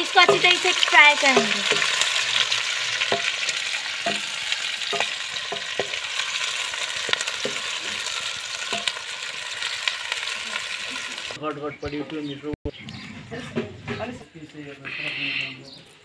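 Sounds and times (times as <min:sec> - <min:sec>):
onions sizzling in hot oil: 0:00.0 - 0:11.4
spatula scraping a metal pot: 0:12.8 - 0:14.4.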